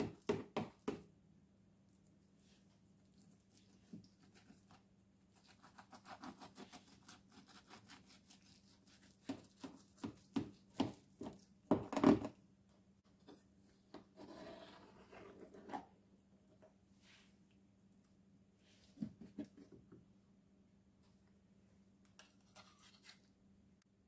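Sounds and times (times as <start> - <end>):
knife sawing through lasagna: 5.4 - 10.3.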